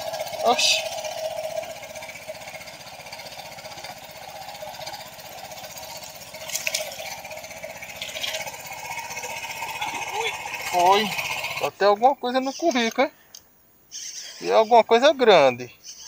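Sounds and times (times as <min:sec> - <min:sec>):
small boat motor running: 0:00.0 - 0:12.2
water splash: 0:05.6 - 0:07.4.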